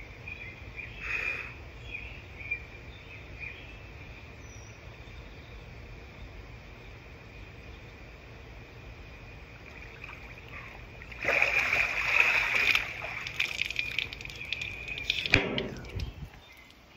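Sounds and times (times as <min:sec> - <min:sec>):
water splashing and pouring: 0:09.6 - 0:16.3
water dripping: 0:09.6 - 0:16.9
sharp knock: 0:15.3 - 0:16.0.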